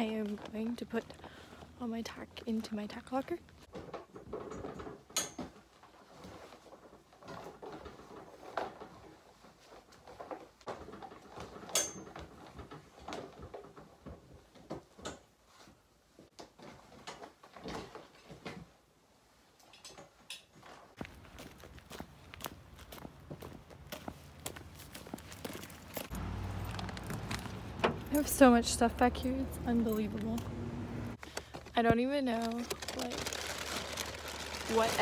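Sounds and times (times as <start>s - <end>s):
horse tack rustling and clinking: 3.5s - 15.7s, 23.3s - 30.5s.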